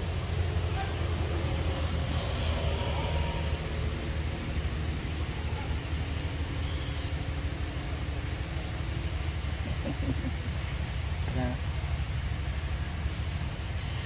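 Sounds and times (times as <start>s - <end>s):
steady low rumble: 0.0s - 14.0s.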